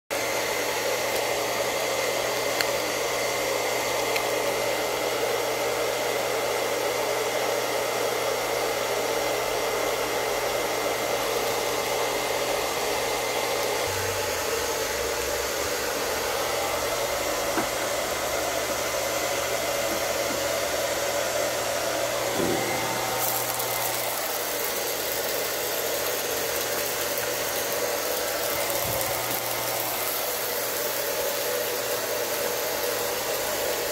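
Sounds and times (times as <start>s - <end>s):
blower whooshing air: 0.1s - 33.9s.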